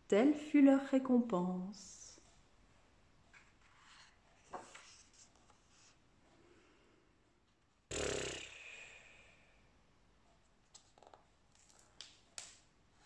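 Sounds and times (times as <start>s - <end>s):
paper sounds: 3.6s - 6.0s.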